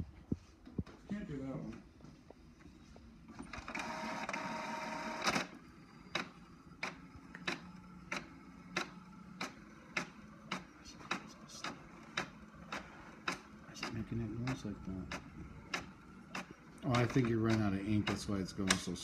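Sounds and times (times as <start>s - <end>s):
printer mechanism whirring: 2.4s - 19.0s
printer clicking: 3.4s - 19.0s
printer clack: 6.2s - 19.0s.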